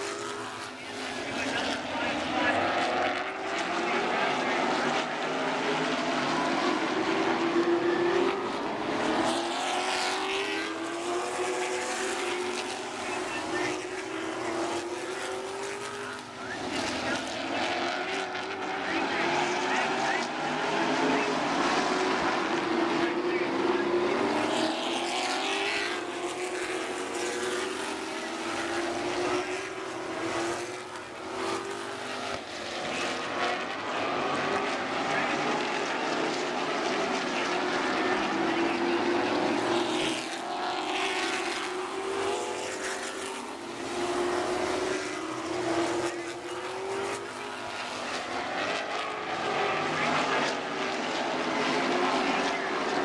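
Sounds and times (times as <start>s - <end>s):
race car engines running hard: 0.0s - 53.0s.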